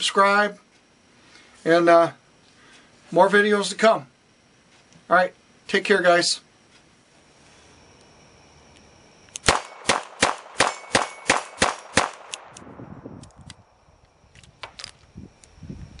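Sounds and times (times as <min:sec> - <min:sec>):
revolver gunshots: 0:09.4 - 0:12.8.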